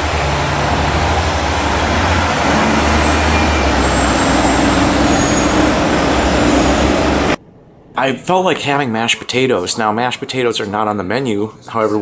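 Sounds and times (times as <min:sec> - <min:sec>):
city traffic noise: 0:00.0 - 0:08.0.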